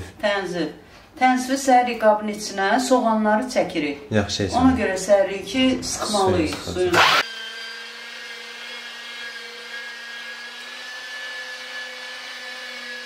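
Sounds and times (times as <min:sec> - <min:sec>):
electric meat grinder whining: 0:06.9 - 0:13.0.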